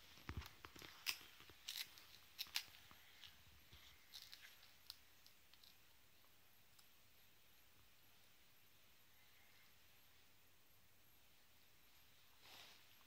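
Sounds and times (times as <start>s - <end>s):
toddler crunching snack: 0.2s - 5.8s.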